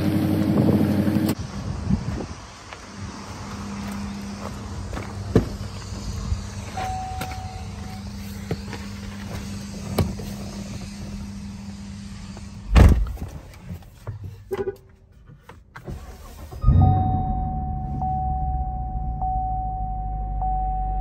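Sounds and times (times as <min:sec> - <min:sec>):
car engine starting and idling: 0:15.4 - 0:21.0.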